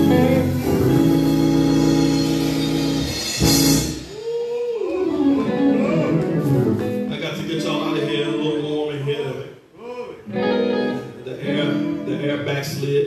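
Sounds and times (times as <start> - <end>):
held keyboard chords: 0.0 - 4.1, 4.9 - 8.6.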